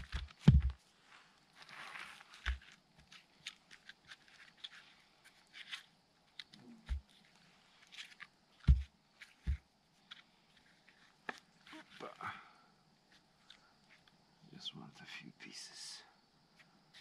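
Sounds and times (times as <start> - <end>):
clicks and rustles of bark: 0.0 - 12.4, 13.0 - 14.2.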